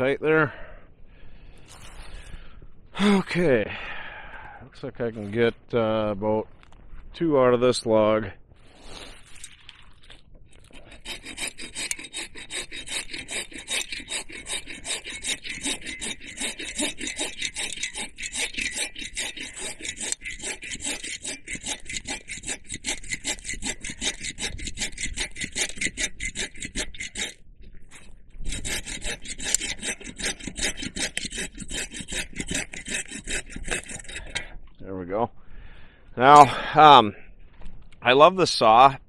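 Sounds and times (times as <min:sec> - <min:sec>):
hand saw cutting log: 0:10.6 - 0:34.6.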